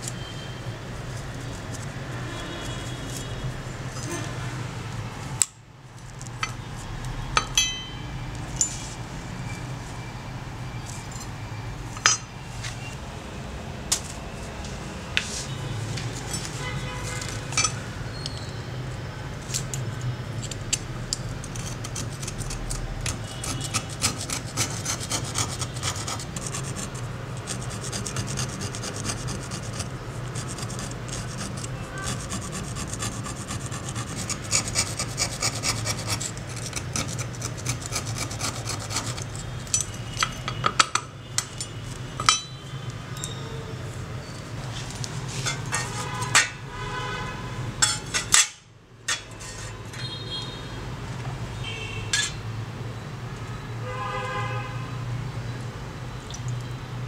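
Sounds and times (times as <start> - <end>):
sharp metal knocks: 7.3 - 8.7
screwdriver scraping rust off metal: 19.5 - 42.6, 45.2 - 46.6, 47.8 - 50.2, 52.1 - 52.4.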